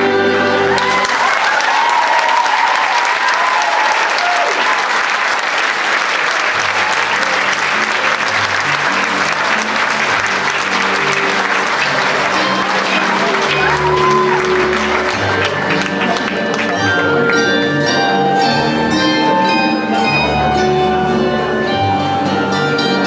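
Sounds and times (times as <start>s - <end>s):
crowd cries: 0.2s - 5.2s, 10.6s - 16.5s
audience applauding: 0.3s - 17.4s.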